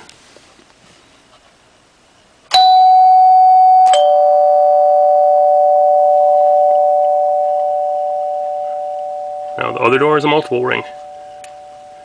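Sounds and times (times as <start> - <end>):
two-note door chime: 2.5 - 12.0.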